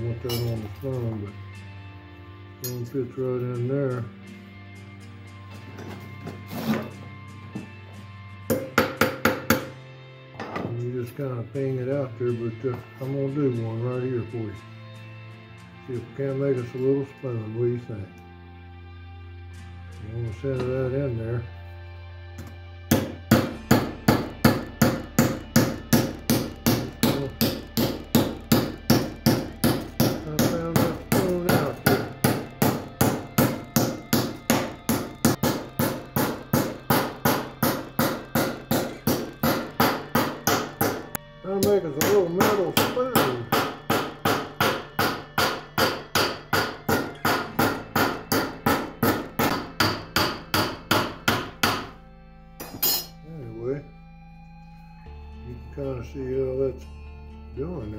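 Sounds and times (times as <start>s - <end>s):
hammer striking steel with ringing: 0.3s - 0.6s, 22.9s - 41.0s, 52.6s - 53.2s.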